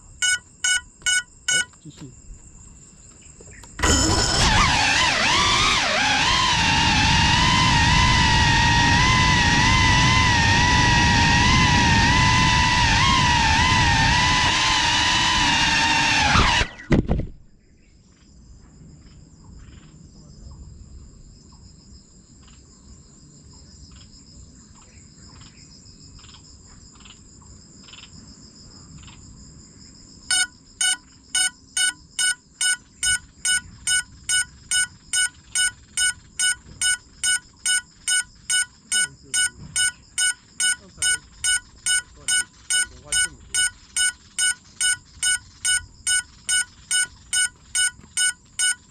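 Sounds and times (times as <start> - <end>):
drone beeper beeping: 0.0 - 1.9, 3.8 - 16.9, 30.3 - 48.9
insects trilling: 0.0 - 16.9, 17.6 - 48.9
drone motors whining: 3.5 - 17.2, 30.3 - 48.9
drone crashing to ground: 3.8 - 17.5.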